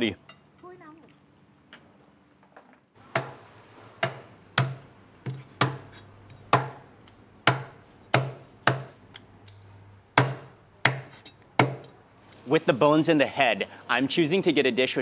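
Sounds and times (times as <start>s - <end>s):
heavy knife chopping through bones: 7.5s - 8.9s, 10.2s - 11.8s.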